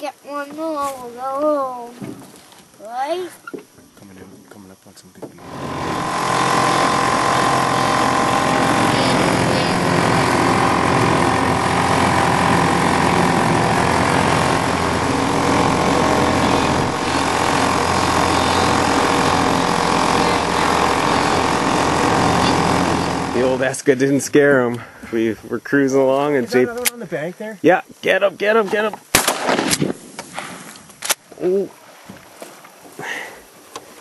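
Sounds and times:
outboard motor running: 0:05.4 - 0:25.3.

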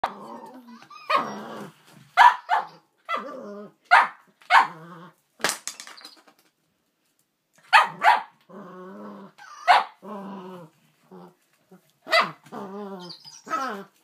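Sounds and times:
dog growling: 0:00.0 - 0:01.8, 0:03.2 - 0:03.8, 0:04.6 - 0:05.2, 0:08.5 - 0:14.0
dog barking: 0:02.2 - 0:02.8, 0:03.9 - 0:04.7, 0:07.7 - 0:08.4, 0:09.7 - 0:10.0, 0:12.1 - 0:12.4.

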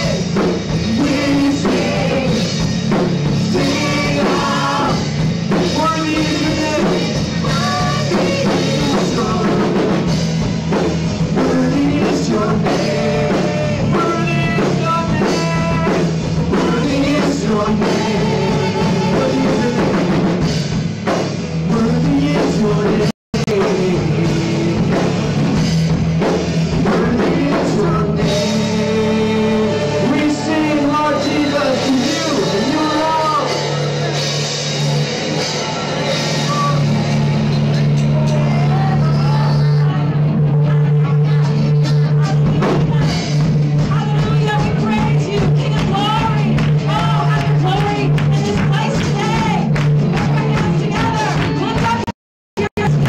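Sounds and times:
several singers: 0:00.0 - 0:09.9, 0:11.3 - 0:20.2, 0:26.8 - 0:34.1
church worship band playing: 0:00.0 - 0:53.0
guitar: 0:00.0 - 0:53.0
keyboard: 0:00.0 - 0:53.0.

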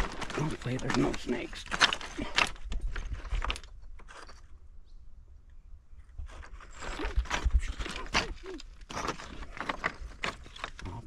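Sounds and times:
footsteps on loose rock slabs: 0:06.3 - 0:11.0.

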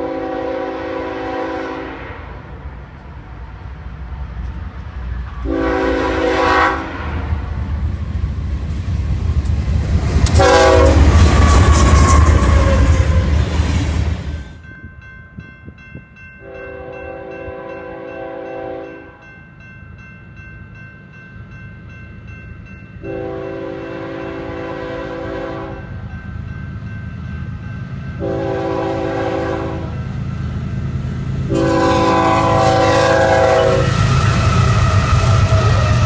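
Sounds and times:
locomotive air horn blasts: 0:00.0 - 0:02.6, 0:05.4 - 0:07.4, 0:10.3 - 0:13.4, 0:16.4 - 0:19.0, 0:23.0 - 0:25.9, 0:28.2 - 0:30.0, 0:31.5 - 0:36.0
train wheels on rails: 0:00.0 - 0:19.3, 0:20.4 - 0:36.0.

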